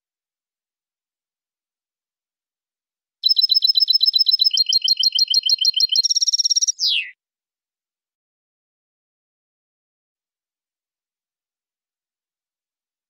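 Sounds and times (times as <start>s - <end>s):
finch singing trills: 3.2s - 7.1s.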